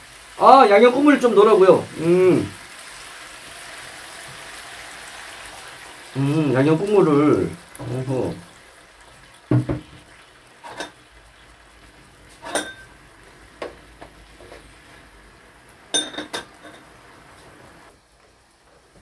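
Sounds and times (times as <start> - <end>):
metal utensils clinking on dishes: 10.6 - 11.0, 12.4 - 12.9, 15.9 - 16.9.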